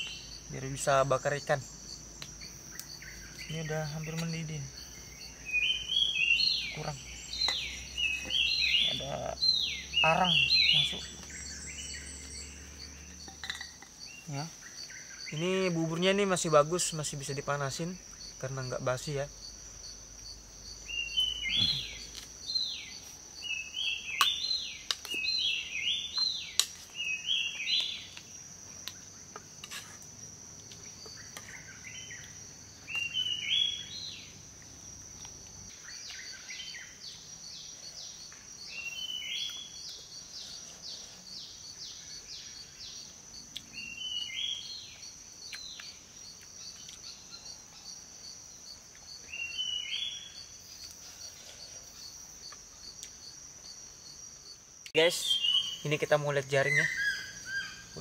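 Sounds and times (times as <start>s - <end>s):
high-pitched insect drone: 0.0s - 58.0s.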